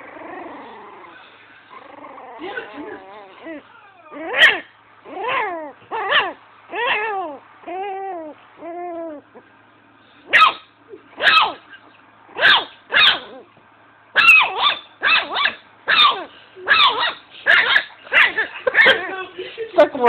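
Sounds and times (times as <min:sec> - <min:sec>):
puppy yapping: 0:01.8 - 0:09.2, 0:10.3 - 0:13.5, 0:14.2 - 0:19.2.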